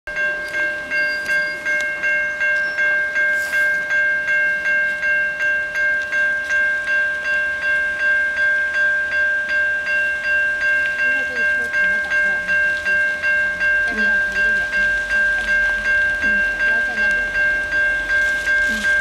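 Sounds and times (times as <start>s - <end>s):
level crossing warning bell: 0.1s - 19.0s.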